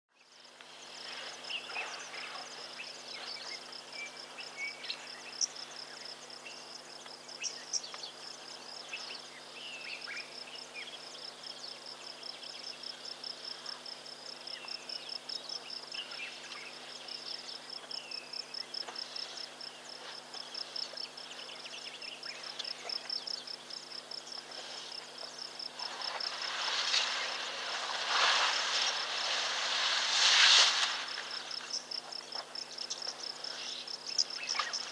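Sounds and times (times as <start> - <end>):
insects trilling: 0.2 - 34.9
rushing noise: 25.7 - 31.8.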